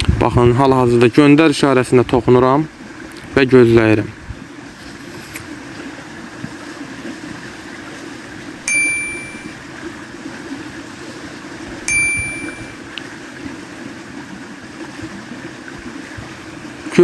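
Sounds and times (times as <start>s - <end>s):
low background hum: 8.6s - 9.6s, 11.9s - 13.0s
bright chime: 8.7s - 9.5s, 11.9s - 12.8s.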